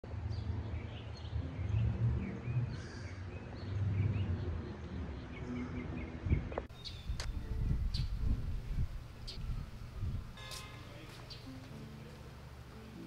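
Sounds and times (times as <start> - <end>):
birds chirping: 0.1 - 13.0
steady low rumble: 6.2 - 12.7.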